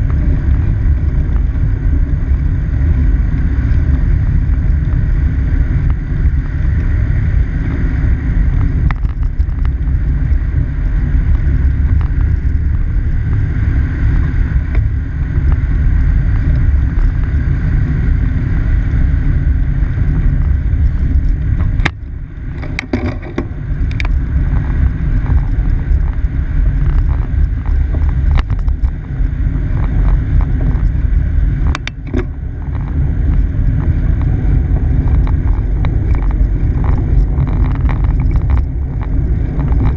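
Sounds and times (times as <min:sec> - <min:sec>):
freeway traffic rumble: 0:00.0 - 0:39.9
wind rushing over microphone: 0:00.0 - 0:39.9.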